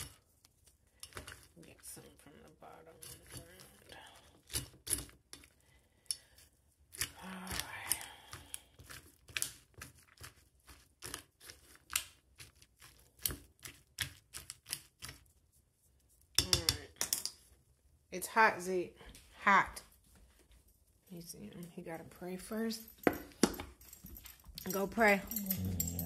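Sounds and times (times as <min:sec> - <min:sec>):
fork scraping metal dog bowl: 0:24.7 - 0:26.0.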